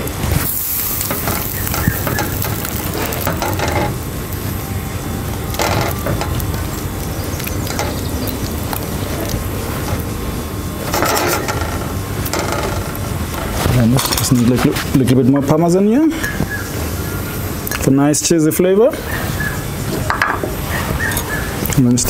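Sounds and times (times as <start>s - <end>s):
rice scraping and sizzling in pan: 0.3s - 11.9s.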